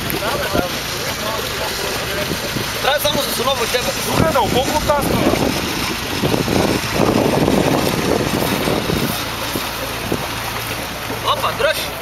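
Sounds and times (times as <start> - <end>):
vehicle engine under load: 0.0 - 12.0.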